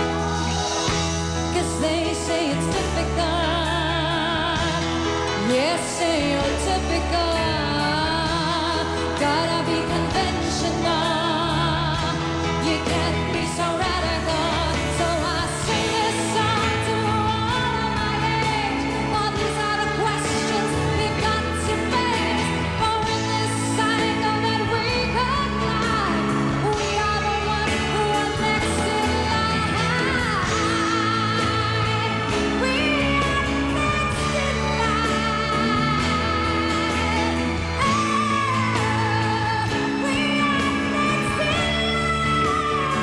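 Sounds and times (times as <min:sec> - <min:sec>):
band with electric guitar: 0:00.0 - 0:43.0
woman singing pop song: 0:00.0 - 0:43.0.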